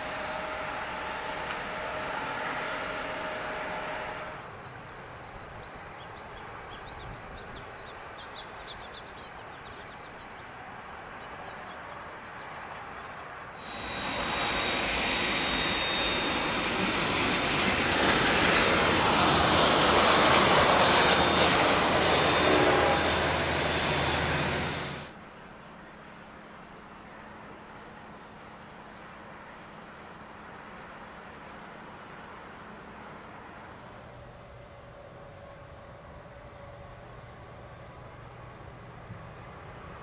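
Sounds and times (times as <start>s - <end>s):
high steady whine: 0.0s - 18.2s
jet engines rushing: 0.0s - 25.2s
birds chirping: 4.4s - 13.9s.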